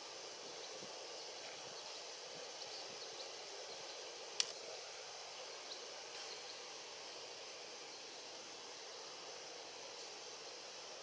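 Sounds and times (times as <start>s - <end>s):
outdoor background hiss: 0.0s - 11.0s
sharp click: 4.4s - 4.6s.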